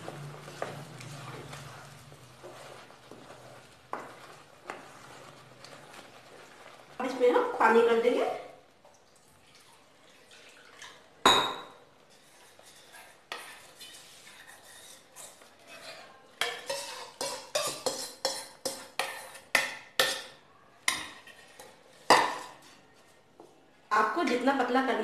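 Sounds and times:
spoon scraping metal bowl: 0:12.1 - 0:20.3.

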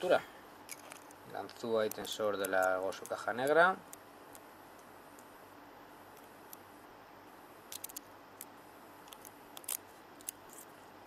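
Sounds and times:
low steady hiss: 0:00.0 - 0:11.0
lock-picking tools clicking: 0:00.7 - 0:04.0.

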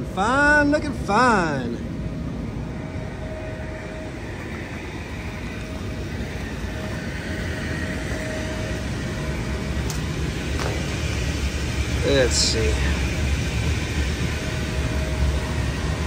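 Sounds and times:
constant machine whine: 0:00.0 - 0:16.0
machinery hum: 0:00.0 - 0:16.0.

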